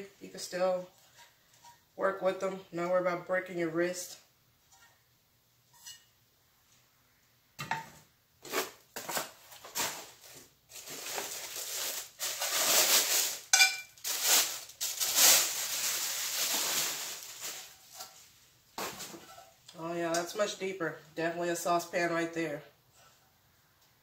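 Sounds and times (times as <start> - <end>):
plastic wrapping crinkling: 8.5 - 19.2.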